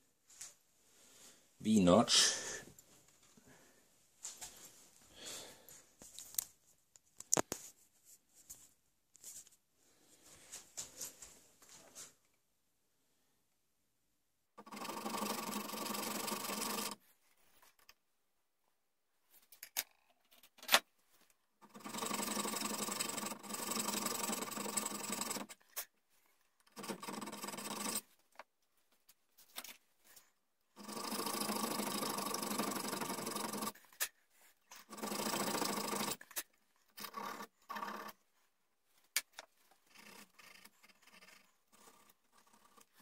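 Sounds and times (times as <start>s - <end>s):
hand file rasping on steel: 21.6s - 25.6s.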